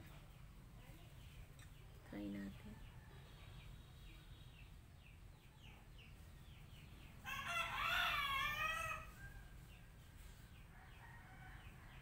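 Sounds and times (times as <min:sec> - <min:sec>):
rooster crowing: 0:07.2 - 0:09.5.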